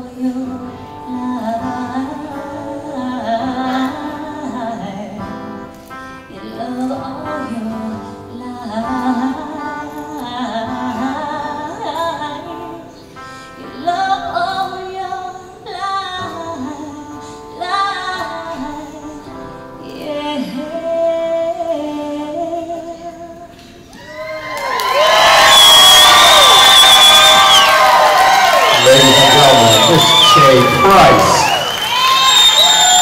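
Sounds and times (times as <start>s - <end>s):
woman singing into a microphone: 0.0s - 23.9s
acoustic guitar: 0.0s - 24.0s
small band playing: 24.7s - 33.0s.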